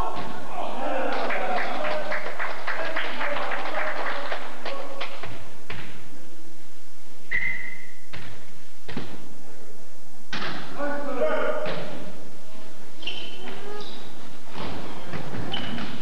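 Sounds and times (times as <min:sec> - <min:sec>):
voices: 0:00.0 - 0:05.1
spectators clapping in rhythm: 0:01.0 - 0:05.3
thuds: 0:08.1 - 0:09.3.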